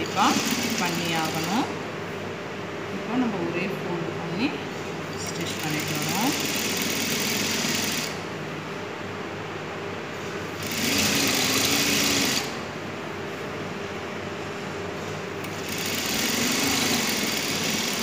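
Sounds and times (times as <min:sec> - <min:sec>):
sewing machine stitching: 0:00.0 - 0:01.7, 0:05.5 - 0:08.2, 0:10.6 - 0:12.5, 0:15.5 - 0:18.0
low steady hum: 0:00.0 - 0:06.4.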